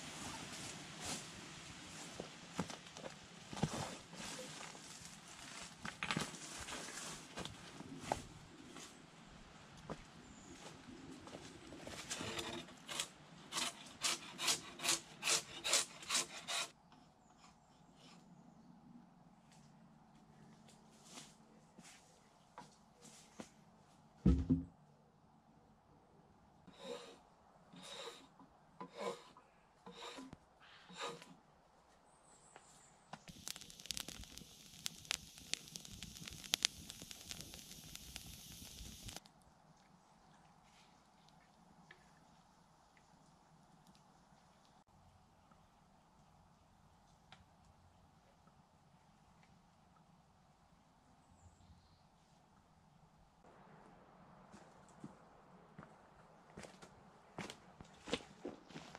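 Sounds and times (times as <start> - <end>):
handsaw cutting through log: 12.2 - 16.7, 26.7 - 27.2, 27.8 - 29.3, 29.9 - 30.3, 30.9 - 31.3
campfire crackling and popping: 33.3 - 39.3.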